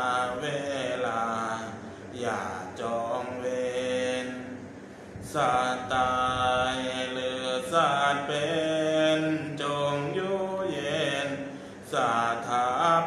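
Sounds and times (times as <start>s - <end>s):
group chanting in unison: 0.0s - 4.6s, 5.2s - 13.0s.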